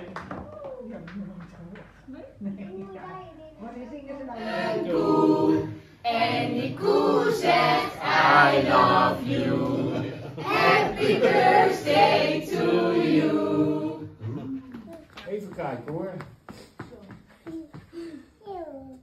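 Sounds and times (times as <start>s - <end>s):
group of people singing: 4.4s - 14.4s.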